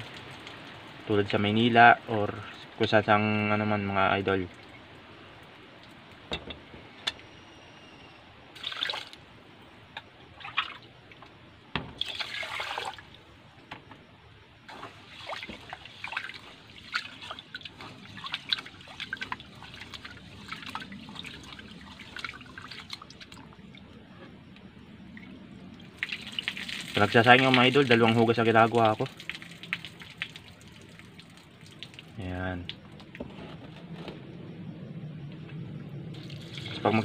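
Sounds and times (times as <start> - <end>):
water sloshing in metal pot: 10.3 - 13.2, 14.7 - 23.9.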